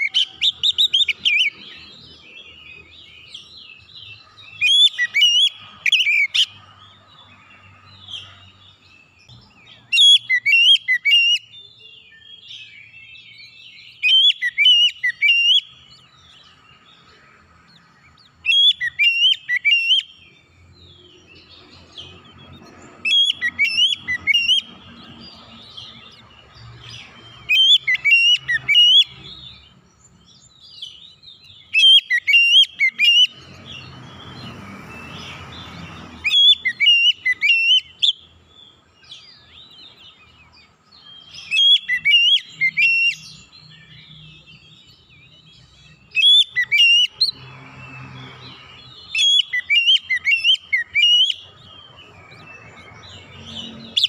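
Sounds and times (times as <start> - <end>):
bird whistling calls: 0.0 - 1.8, 3.8 - 6.5, 9.7 - 16.0, 18.4 - 20.3, 23.0 - 26.1, 27.0 - 29.4, 31.6 - 35.4, 36.1 - 38.3, 41.1 - 44.6, 46.1 - 47.4, 49.1 - 54.0.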